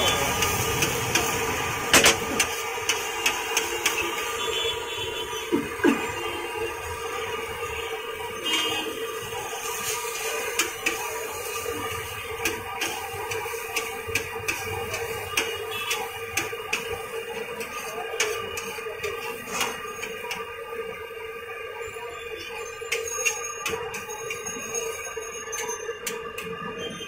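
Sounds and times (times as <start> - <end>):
eggs sizzling frying: 0.0 - 21.4.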